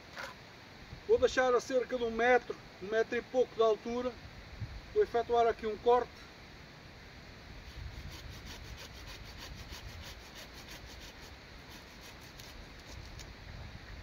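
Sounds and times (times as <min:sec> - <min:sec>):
hand saw cutting branch: 0:07.7 - 0:13.3.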